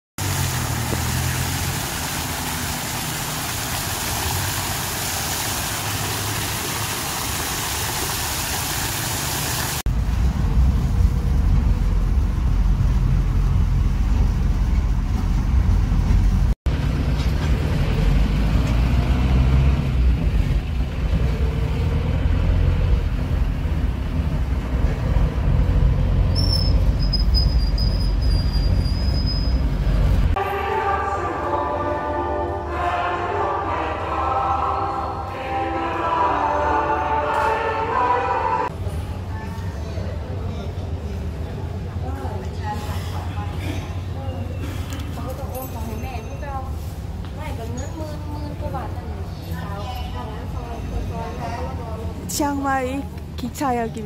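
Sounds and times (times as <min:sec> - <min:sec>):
fountain water splashing: 0:00.2 - 0:09.9
vehicle engine and road rumble: 0:00.2 - 0:30.4.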